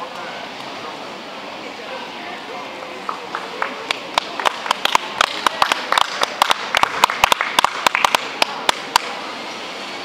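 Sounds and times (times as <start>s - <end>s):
people clapping: 2.8s - 9.2s.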